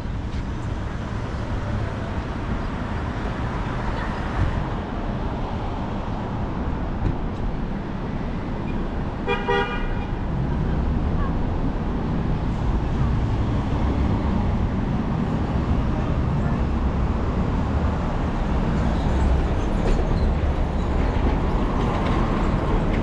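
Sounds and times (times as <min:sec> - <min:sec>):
city traffic: 0:00.0 - 0:23.0
car horn toot: 0:09.3 - 0:10.1.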